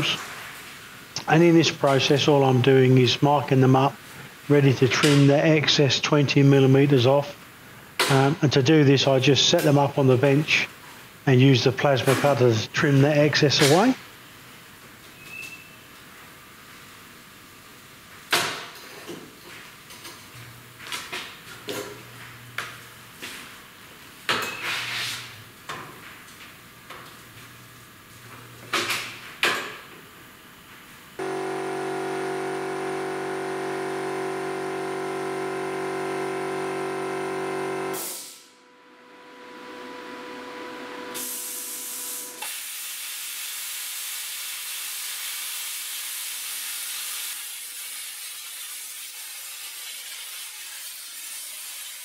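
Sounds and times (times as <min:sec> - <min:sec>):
loud multi-tone hum: 0:31.2 - 0:42.5
plasma cutter hissing: 0:37.9 - 0:38.4, 0:41.1 - 0:52.0.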